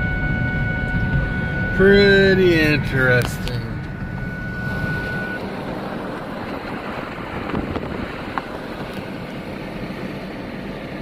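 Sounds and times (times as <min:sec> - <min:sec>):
thin high steady tone: 0:00.0 - 0:06.0
car road and engine noise: 0:00.0 - 0:11.0.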